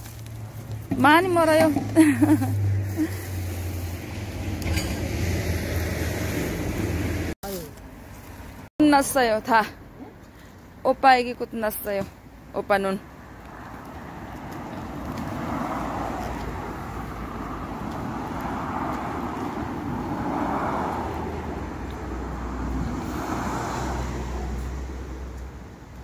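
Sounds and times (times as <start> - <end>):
cars passing: 0.0 - 26.0.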